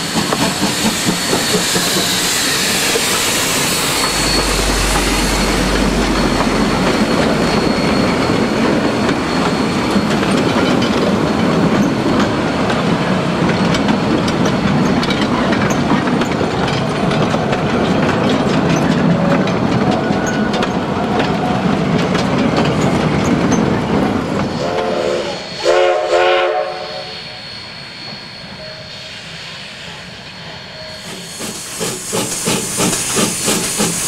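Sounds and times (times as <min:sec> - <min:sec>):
train cars rumbling past: 0:00.0 - 0:34.0
wheels clicking over rail joints: 0:10.0 - 0:24.1
steam whistle blasts: 0:24.5 - 0:32.0.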